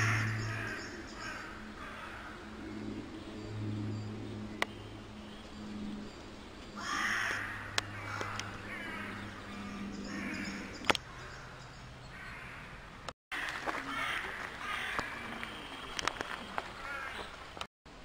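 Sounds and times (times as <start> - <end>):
crows cawing: 0.0 - 2.5, 6.8 - 15.5, 16.8 - 17.3
low steady hum: 0.0 - 12.1.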